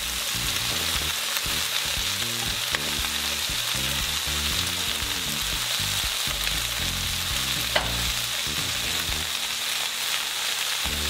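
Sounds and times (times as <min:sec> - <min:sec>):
food sizzling in a wok: 0:00.0 - 0:11.0
sharp metallic clink: 0:07.8 - 0:08.1.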